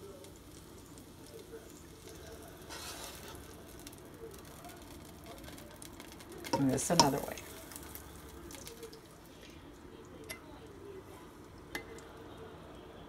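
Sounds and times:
faint background noise: 0.0 - 13.0.

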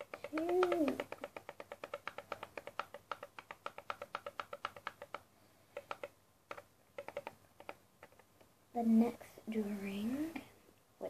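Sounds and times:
laptop keys tapping: 0.0 - 8.6.

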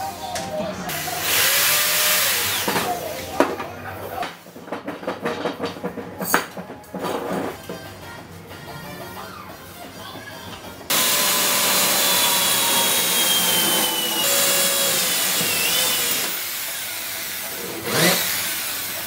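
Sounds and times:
electric drill motor whining: 0.9 - 3.2, 10.9 - 19.0
drill bit grinding into wood: 10.9 - 19.0.

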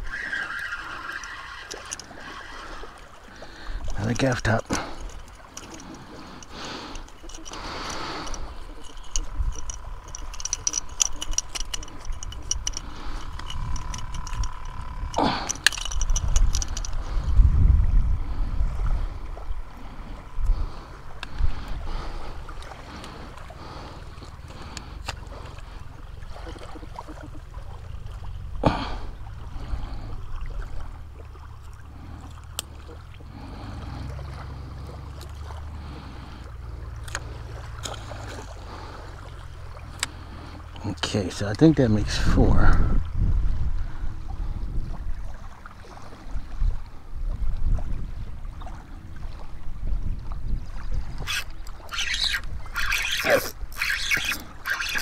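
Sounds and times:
fishing gear clicking and rattling: 0.0 - 17.5, 20.2 - 26.1, 31.6 - 42.9, 51.2 - 55.0
wind buffeting microphone: 1.1 - 31.0, 41.3 - 55.0
sharp clicks: 3.8 - 17.0
fish splashing in water: 21.6 - 40.7.

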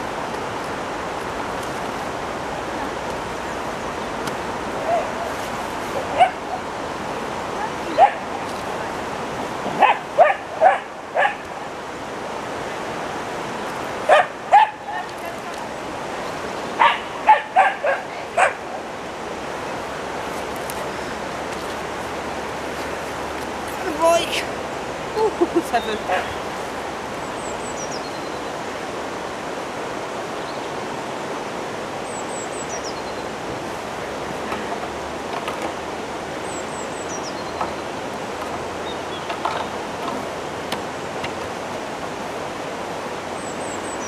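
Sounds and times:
river water flowing: 0.0 - 44.0
dog barking: 6.1 - 6.6, 8.0 - 8.2, 9.8 - 11.4, 14.1 - 14.8, 16.8 - 18.6.

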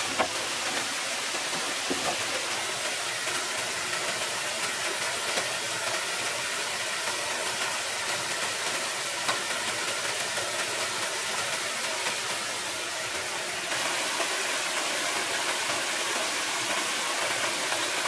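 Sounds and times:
bamboo poles knocking: 0.0 - 2.4
stream running over rocks: 0.0 - 18.0.

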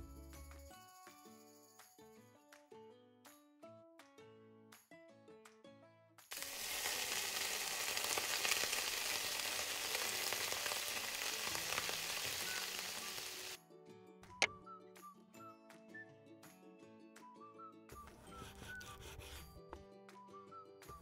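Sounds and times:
light music: 0.0 - 8.3, 9.7 - 21.0
meat sizzling in hot oil: 6.3 - 13.6.

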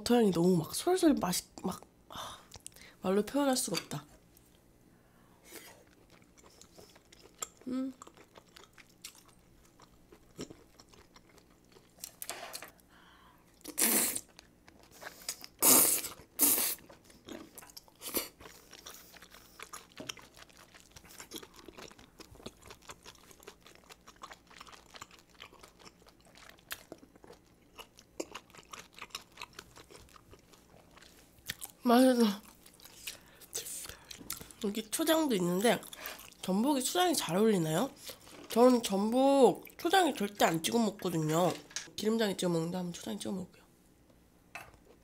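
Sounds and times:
wet chewing clicks: 13.6 - 31.8.

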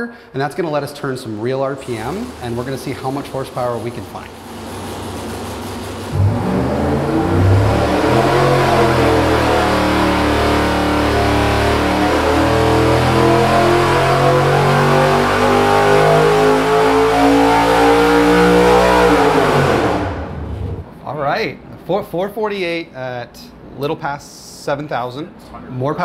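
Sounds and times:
engine revving at full throttle: 1.8 - 20.8.

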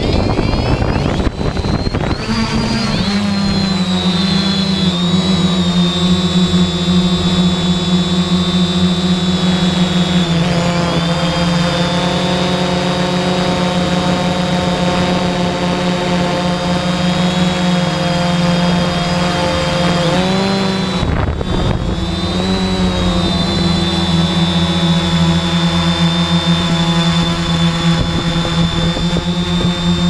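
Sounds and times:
drone propellers whining: 0.0 - 30.0.

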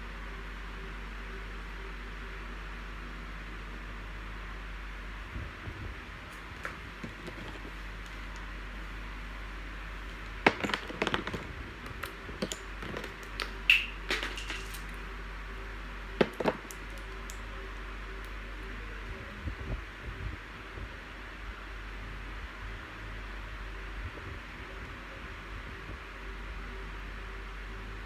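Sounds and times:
makeup tools clicking and tapping: 16.2 - 17.4.

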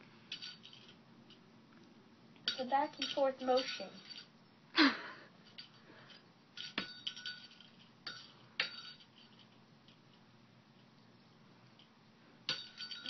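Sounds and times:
small hard objects clinking: 0.3 - 4.4, 5.4 - 10.2, 12.5 - 13.0.

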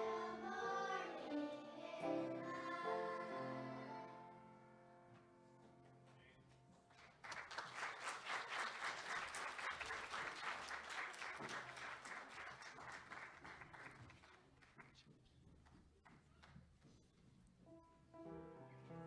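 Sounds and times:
audience applause: 7.0 - 15.0.

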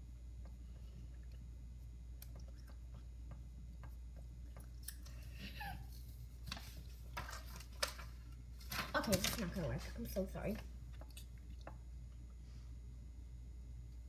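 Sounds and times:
steady low hum: 0.0 - 14.0
rustling and handling noises: 5.0 - 11.1.

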